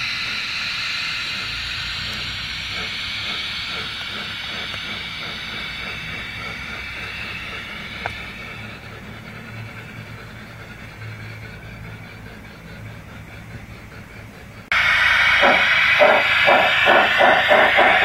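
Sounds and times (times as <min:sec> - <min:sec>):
steam hiss: 0:00.0 - 0:14.0, 0:14.6 - 0:18.0
wheels rumbling on rails: 0:00.0 - 0:18.0
soft quick chuffing: 0:02.7 - 0:18.0.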